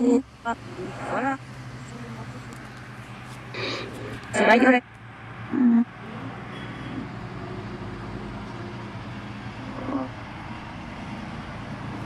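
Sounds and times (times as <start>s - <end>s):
radio static hiss: 0.0s - 4.8s.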